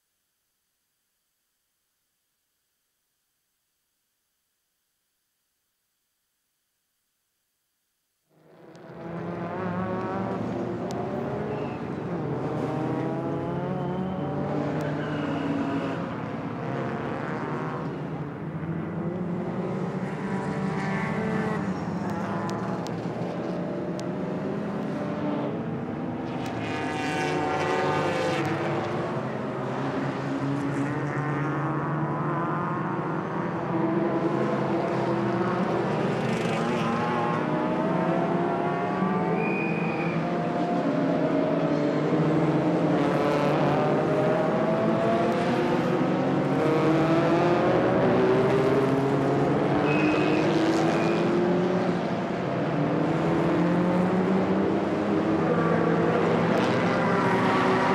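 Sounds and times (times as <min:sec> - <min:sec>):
race cars passing at speed: 0:08.4 - 0:57.9.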